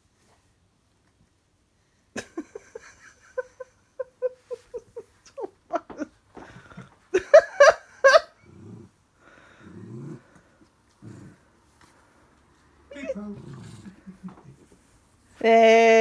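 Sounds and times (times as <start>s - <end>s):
woman laughing: 2.2s - 8.4s, 13.9s - 14.7s
small dog growling: 8.4s - 11.6s, 12.9s - 14.4s.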